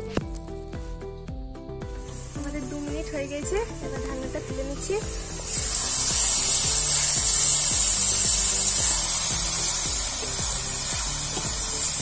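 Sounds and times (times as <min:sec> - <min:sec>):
background music: 0:00.0 - 0:12.0
curry sizzling in a pan: 0:02.0 - 0:12.0.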